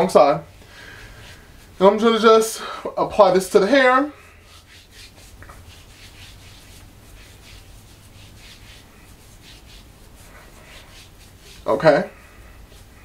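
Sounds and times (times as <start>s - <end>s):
fingers rubbing hair: 3.1s - 13.0s.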